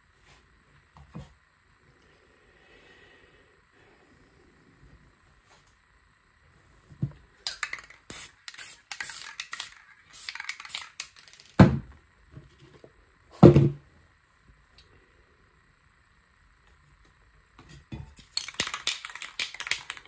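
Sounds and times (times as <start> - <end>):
spray can hissing: 7.4 - 11.6, 18.2 - 20.0.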